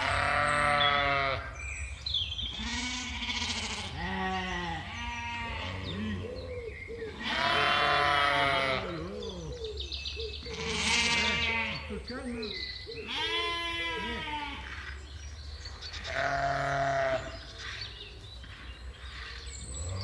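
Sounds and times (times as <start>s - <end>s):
animals bleating: 0.0s - 1.6s, 2.5s - 6.2s, 7.1s - 9.4s, 10.4s - 15.0s, 15.9s - 17.5s.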